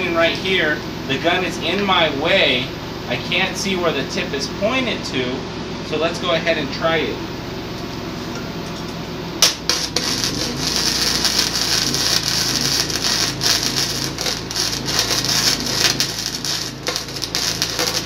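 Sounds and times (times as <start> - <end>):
welding arc crackling: 9.4 - 18.0.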